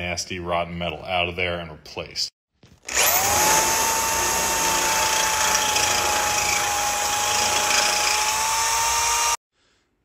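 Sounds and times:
power tool cutting sheet steel: 2.9 - 9.4.

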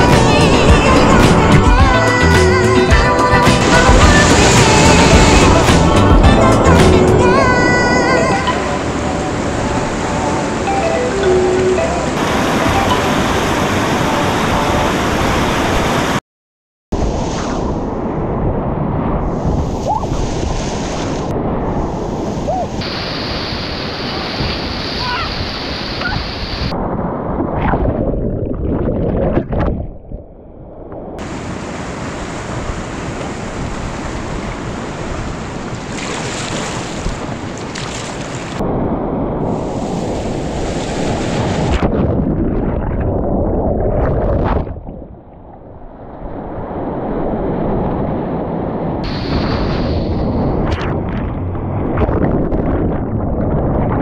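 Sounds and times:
whitewater churning and splashing: 0.0 - 16.2, 21.9 - 26.8, 31.2 - 38.7, 49.0 - 54.0
wind buffeting microphone: 24.3 - 54.0.

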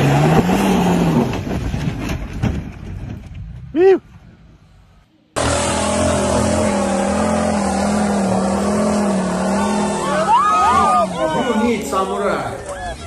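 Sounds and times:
buggy engine revving hard: 0.0 - 1.5, 5.4 - 12.2
people shouting: 9.3 - 13.0.

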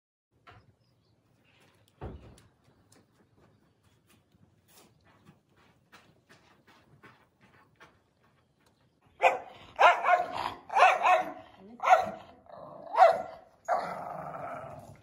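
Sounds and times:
dog barking and yowling: 9.2 - 15.0.

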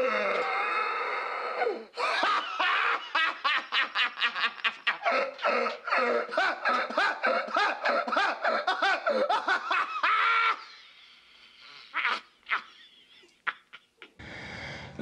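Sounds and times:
man laughing hysterically: 2.0 - 11.0, 12.0 - 14.2.

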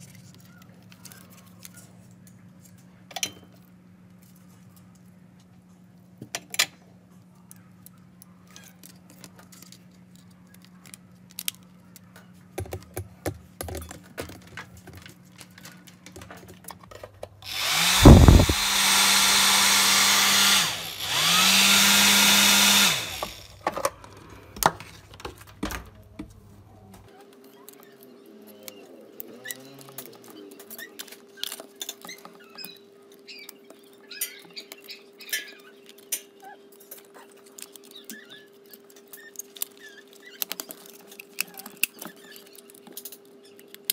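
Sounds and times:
hair dryer rush of air: 17.5 - 23.6
thump of motor starting: 17.7 - 19.0
plastic clicks and rattles: 35.3 - 43.9.

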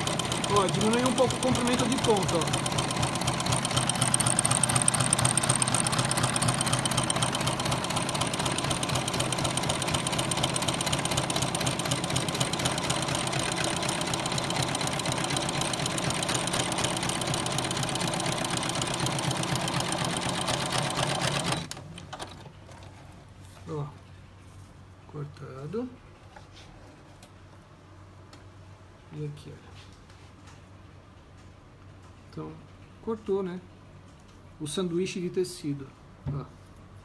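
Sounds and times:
sewing machine running: 0.0 - 22.9.

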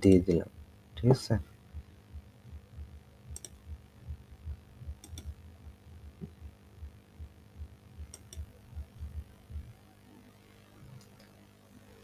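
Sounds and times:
faint electrical hum: 0.0 - 12.0
low uneven throbbing thump: 0.5 - 9.8
computer mouse clicks: 3.3 - 3.6, 5.0 - 5.4, 8.1 - 8.5.

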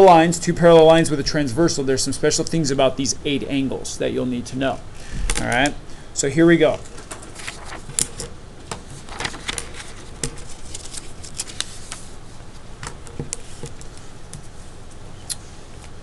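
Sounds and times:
paper sheets crackling: 6.6 - 12.2.

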